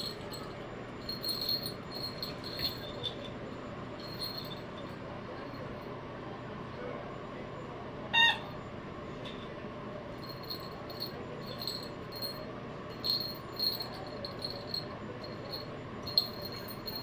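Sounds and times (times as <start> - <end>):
bell in toy ball jingling: 0.0 - 3.4, 4.0 - 5.0, 10.2 - 17.0.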